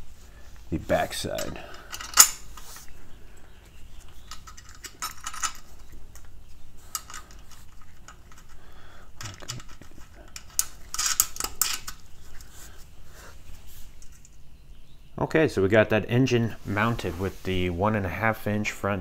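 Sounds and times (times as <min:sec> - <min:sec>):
hand tool clinking on bolts: 0:01.3 - 0:02.4, 0:04.3 - 0:06.3, 0:09.2 - 0:12.0.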